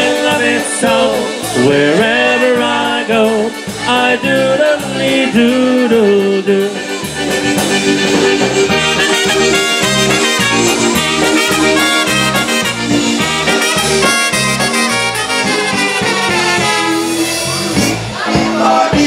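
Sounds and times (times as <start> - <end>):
accordions: 0.0 - 19.0
pulsing bass beat: 0.0 - 19.0
trumpets playing melody: 5.4 - 18.3.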